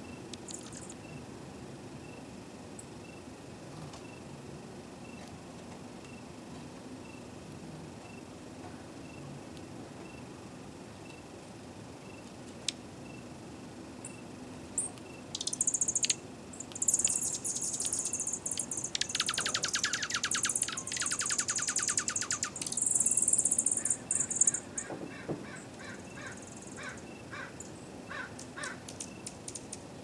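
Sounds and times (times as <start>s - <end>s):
bird rapid trill: 14.8s - 24.9s
birds twittering: 14.8s - 29.7s.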